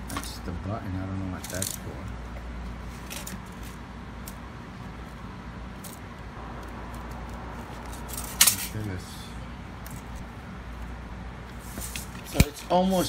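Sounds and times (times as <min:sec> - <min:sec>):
steady low hum: 0:00.0 - 0:13.0
cable and tape measure handling: 0:01.4 - 0:01.9, 0:03.0 - 0:04.4, 0:06.6 - 0:08.8.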